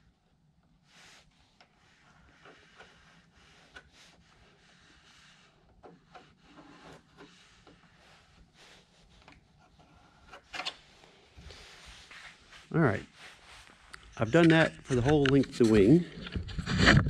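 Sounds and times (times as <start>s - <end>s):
pencil scratching on fabric: 0.9s - 10.4s.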